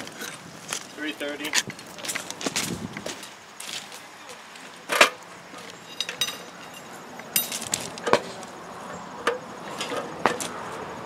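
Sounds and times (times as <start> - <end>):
metallic knocks and clinks: 5.8 - 8.2.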